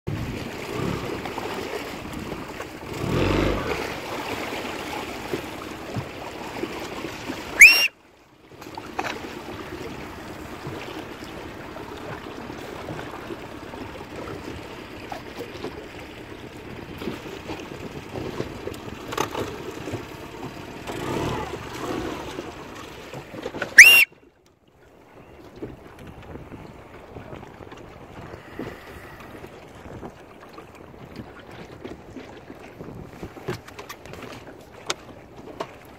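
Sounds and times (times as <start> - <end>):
water slapping around boat: 0.1 - 35.9
loud high squeal: 7.6 - 7.9, 23.8 - 24.1
wind buffeting microphone: 25.2 - 34.3.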